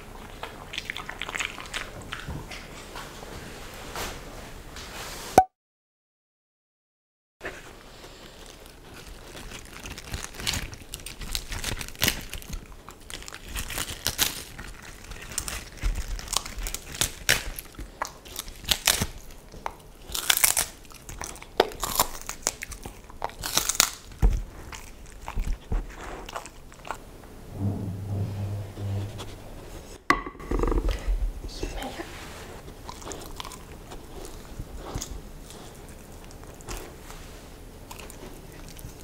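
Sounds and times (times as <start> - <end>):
dog crunching leafy vegetables: 0.0 - 3.0, 8.2 - 27.0, 32.6 - 39.0.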